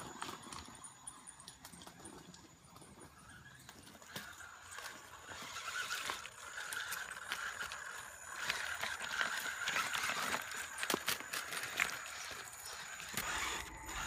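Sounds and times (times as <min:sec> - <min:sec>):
stones clattering under tyres: 0:00.0 - 0:14.0
electric motor whining: 0:03.1 - 0:14.0.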